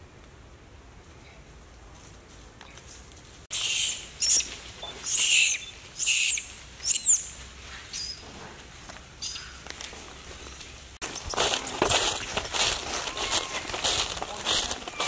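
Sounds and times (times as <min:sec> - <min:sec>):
monkey screaming: 0:03.5 - 0:07.3.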